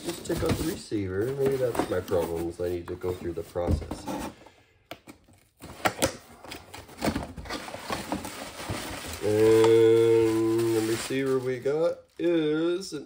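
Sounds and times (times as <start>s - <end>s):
cardboard box being handled: 6.9s - 11.2s.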